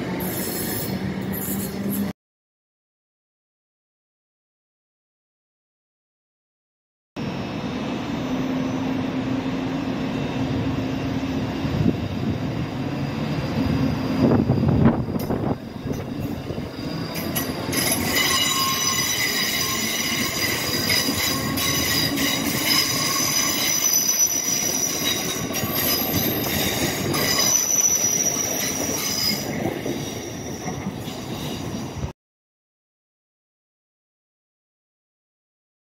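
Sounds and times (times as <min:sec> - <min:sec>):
high steady whines: 0:07.2 - 0:17.7
train wheels rumbling on rail: 0:07.2 - 0:32.1.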